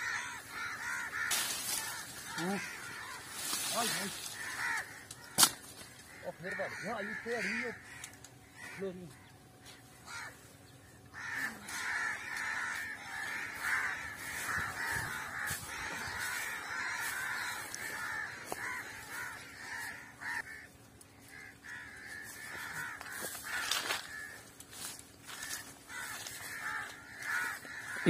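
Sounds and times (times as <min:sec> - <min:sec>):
twigs crackling in brush: 0:00.0 - 0:06.8, 0:11.2 - 0:28.0
harsh bird calls: 0:00.0 - 0:28.0.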